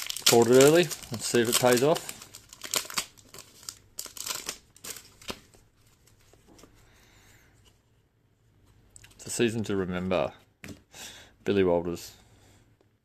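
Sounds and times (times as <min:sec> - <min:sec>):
foil wrapper crinkling and tearing: 0:00.0 - 0:05.4.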